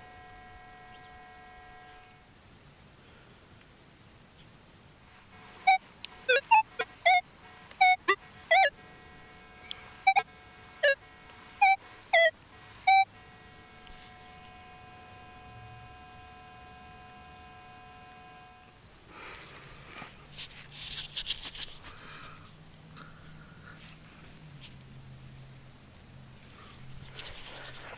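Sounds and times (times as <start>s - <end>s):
metal detector steady tone: 0.0s - 2.3s, 5.2s - 18.8s
metal detector beeps: 5.6s - 7.2s, 7.8s - 8.9s, 9.6s - 11.0s, 11.6s - 15.4s.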